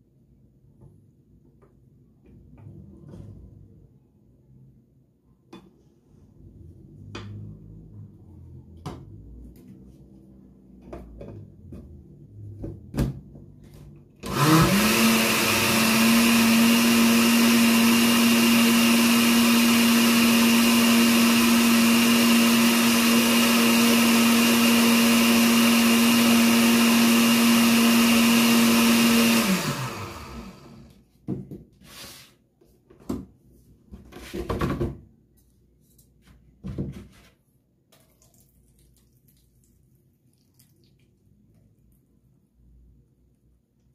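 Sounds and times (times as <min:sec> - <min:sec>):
blender motor running: 0:14.2 - 0:30.9.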